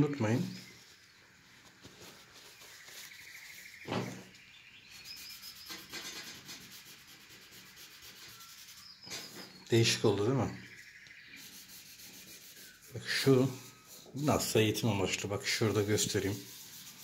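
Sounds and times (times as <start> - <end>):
tissue scrubbing on paper: 0.6 - 3.9, 4.9 - 9.5, 11.3 - 17.0.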